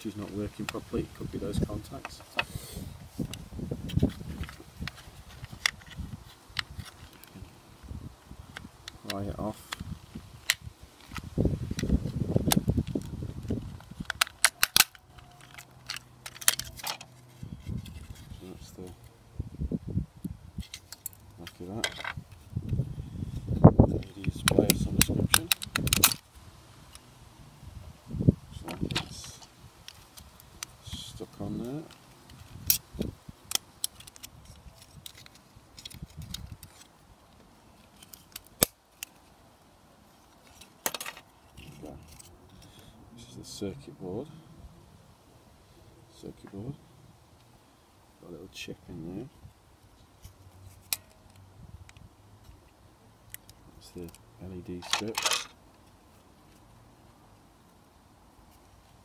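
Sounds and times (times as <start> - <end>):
plastic clicks and snaps: 10.4 - 17.0, 24.0 - 26.2, 31.9 - 37.4, 53.3 - 54.2.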